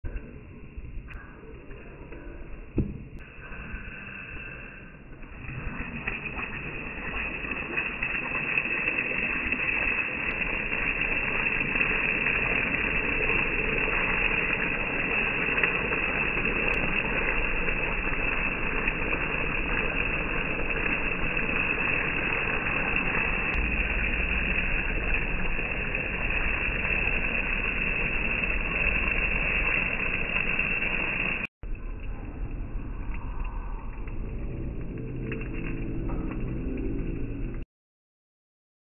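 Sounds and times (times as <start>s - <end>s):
sauce sizzling on a hot plate: 5.4s - 31.5s.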